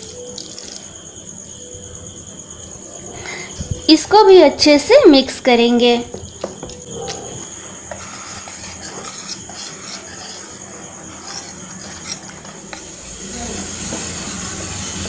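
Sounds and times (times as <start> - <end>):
whisk beating batter in metal bowl: 7.9 - 13.0.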